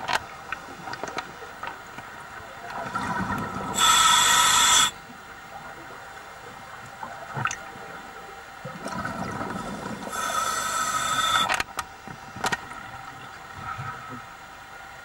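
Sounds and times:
hissing regulator inhalation: 0:03.7 - 0:05.0, 0:09.6 - 0:11.6.

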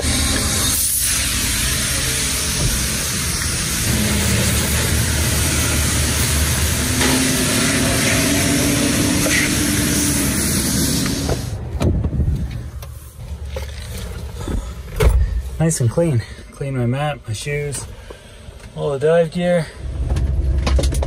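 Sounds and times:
pressure washer spray hissing: 0:00.0 - 0:11.6.

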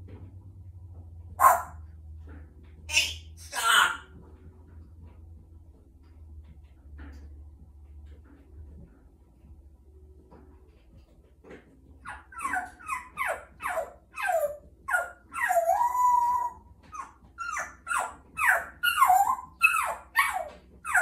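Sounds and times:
parrot imitating dog barks: 0:01.4 - 0:01.8, 0:02.9 - 0:04.1, 0:12.0 - 0:21.0.

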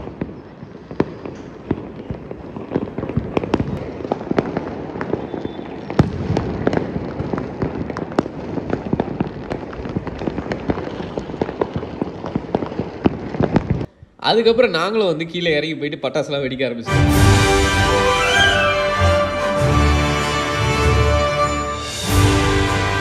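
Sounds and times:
firecrackers and fireworks banging: 0:00.0 - 0:13.9, 0:16.9 - 0:23.0.

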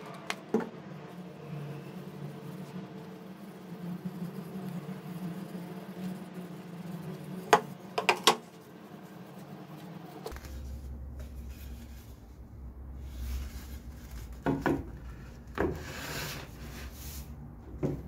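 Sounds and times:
steady low hum: 0:00.0 - 0:18.0
quiet handling and rubbing: 0:01.0 - 0:18.0
wood knocking on wooden tabletop: 0:08.0 - 0:08.4.

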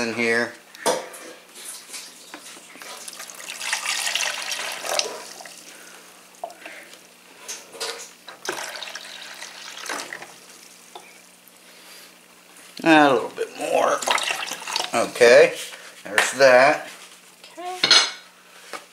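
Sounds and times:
liquid pouring into reservoir: 0:02.8 - 0:05.7, 0:08.4 - 0:10.4, 0:13.8 - 0:15.0.

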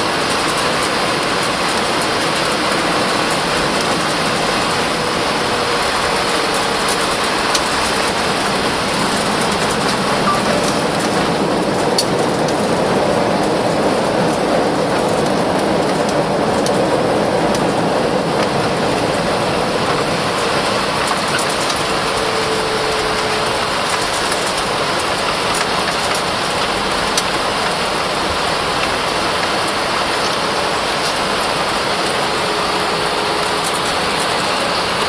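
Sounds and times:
airliner rushing noise: 0:00.0 - 0:26.2.

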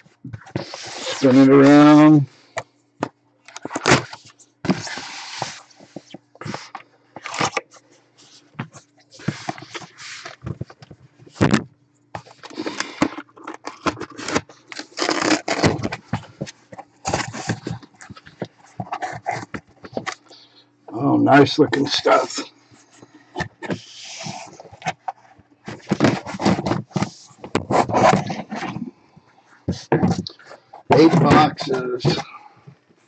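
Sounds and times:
faint steady hum: 0:00.0 - 0:33.0
cardboard box rustling and scraping: 0:00.3 - 0:02.1, 0:03.6 - 0:11.6, 0:12.2 - 0:20.2, 0:22.9 - 0:28.9, 0:29.7 - 0:32.3.

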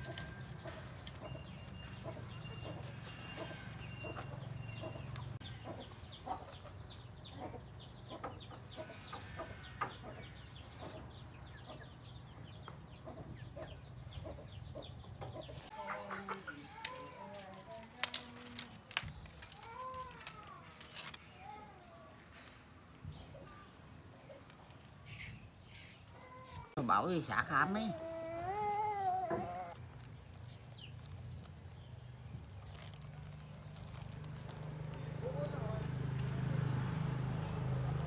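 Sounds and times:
chickens clucking: 0:12.6 - 0:16.8.

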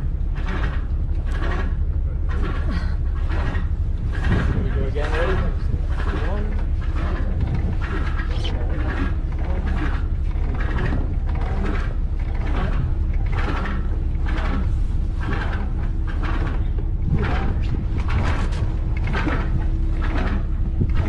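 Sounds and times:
rigging creaking and rattling: 0:00.0 - 0:21.0
wind rumbling on microphone: 0:00.0 - 0:21.0.

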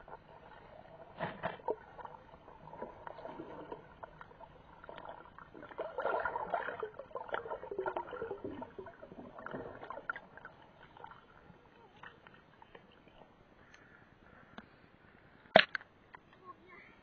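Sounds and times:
bubbles: 0:00.0 - 0:11.6
swirling water underwater: 0:00.0 - 0:13.4.

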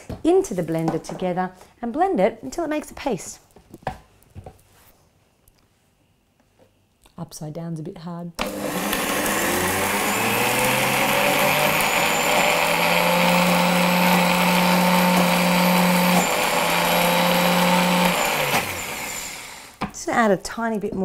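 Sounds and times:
blender motor running: 0:08.4 - 0:19.8.

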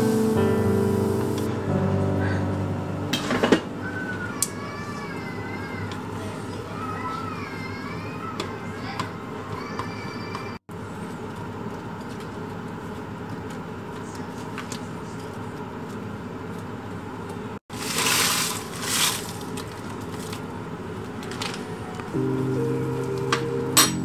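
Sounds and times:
kitchen handling sounds: 0:03.1 - 0:03.7
plastic bag crinkling: 0:17.7 - 0:20.5.

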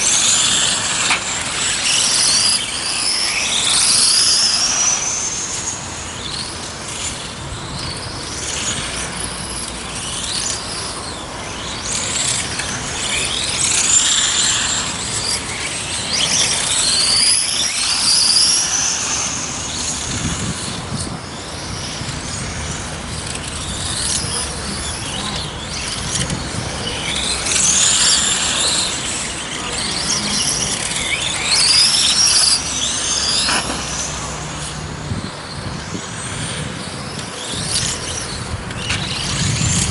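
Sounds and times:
rc car motors whining: 0:00.0 - 0:39.9.

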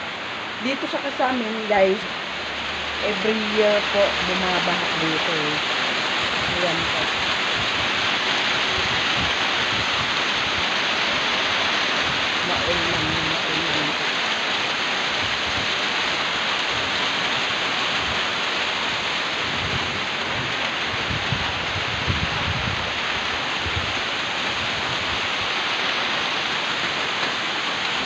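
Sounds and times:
heavy rain pouring: 0:00.0 - 0:28.0.

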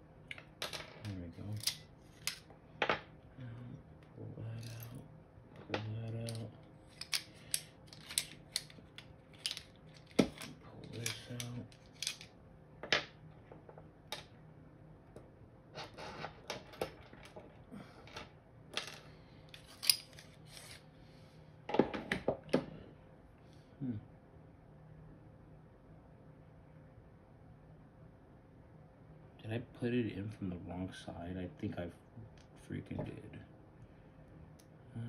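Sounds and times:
small parts clicking and clacking: 0:00.3 - 0:02.5, 0:04.6 - 0:05.0, 0:05.7 - 0:12.3, 0:16.4 - 0:20.8.

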